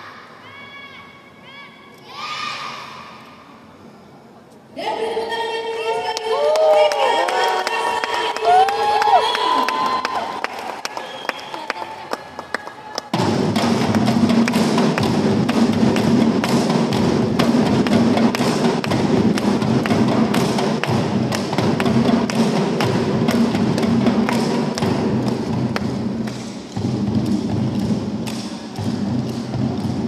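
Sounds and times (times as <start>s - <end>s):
drum band playing: 13.1s - 30.0s.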